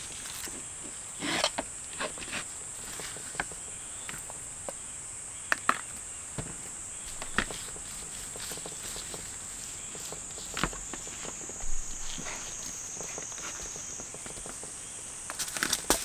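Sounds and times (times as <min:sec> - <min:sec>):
high-pitched insect song: 0:00.0 - 0:16.0.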